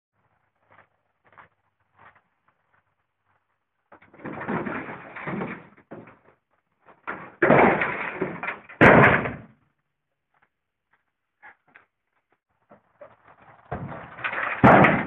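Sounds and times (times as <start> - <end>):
metal scraping and rattling: 3.3 - 6.3, 6.9 - 9.5, 12.7 - 15.0
truck body crashing to ground: 4.0 - 6.3, 7.0 - 9.6, 13.6 - 15.0.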